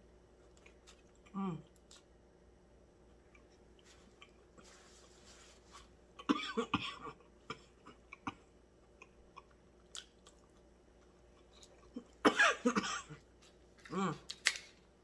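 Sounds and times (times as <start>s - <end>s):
cough-like vocal outburst: 6.2s - 8.4s, 12.2s - 13.2s.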